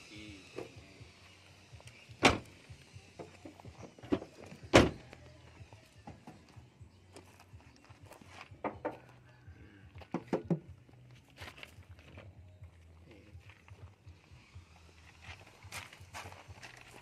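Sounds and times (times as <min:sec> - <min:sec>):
car tailgate thudding shut: 0:02.2 - 0:02.5, 0:04.1 - 0:05.0.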